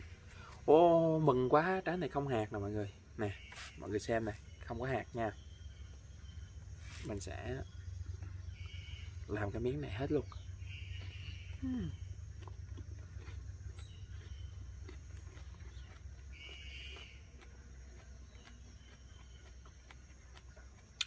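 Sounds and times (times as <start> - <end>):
low steady rumble: 0.0 - 3.2, 4.1 - 21.0
person chewing fruit: 5.6 - 9.2, 9.8 - 21.0
bird call: 8.2 - 9.3, 10.2 - 12.1, 15.8 - 17.2.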